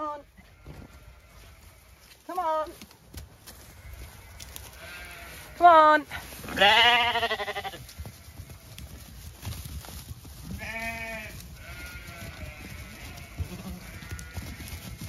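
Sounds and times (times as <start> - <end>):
lambs bleating: 0.0 - 2.1, 3.6 - 8.7, 10.6 - 15.0.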